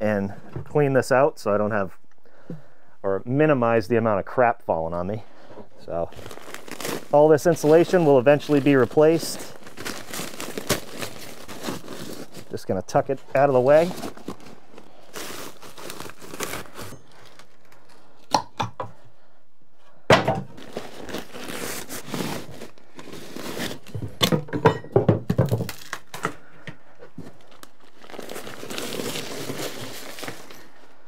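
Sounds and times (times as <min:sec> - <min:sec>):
insulation crinkling and tearing: 0:05.9 - 0:18.4, 0:20.5 - 0:24.3, 0:25.5 - 0:30.8.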